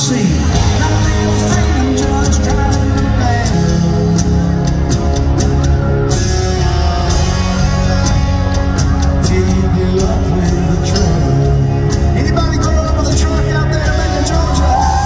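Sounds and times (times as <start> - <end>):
drums: 0.0 - 15.0
electric guitar: 0.0 - 15.0.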